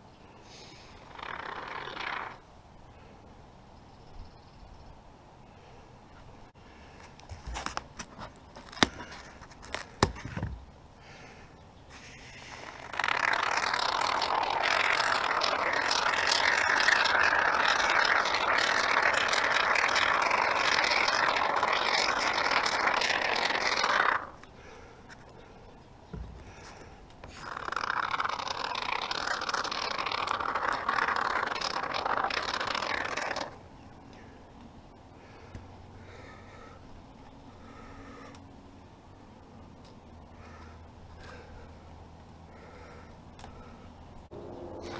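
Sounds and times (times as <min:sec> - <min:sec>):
spray foam can hissing: 0:12.0 - 0:24.3, 0:27.4 - 0:33.5.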